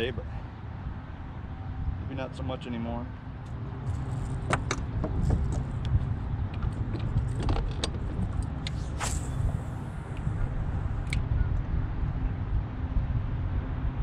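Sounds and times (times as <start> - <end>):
steady low rumble: 0.0 - 14.0
brief hiss: 8.7 - 10.3.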